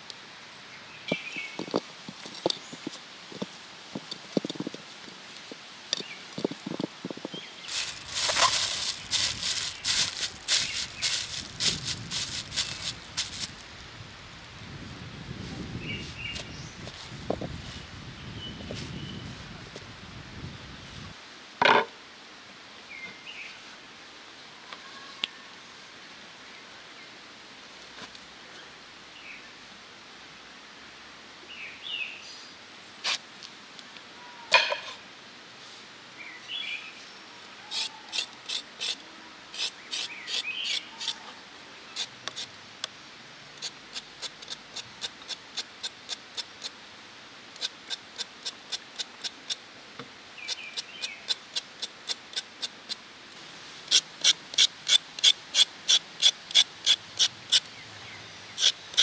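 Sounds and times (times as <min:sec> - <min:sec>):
birds chirping: 0:00.8 - 0:01.8, 0:06.0 - 0:11.6, 0:50.4 - 0:51.3.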